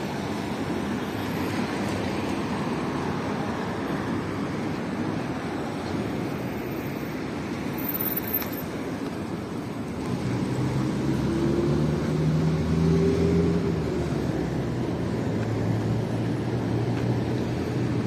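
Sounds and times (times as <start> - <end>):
cars passing on road: 0.0 - 18.0
vehicle engine drone passing close: 10.1 - 16.8.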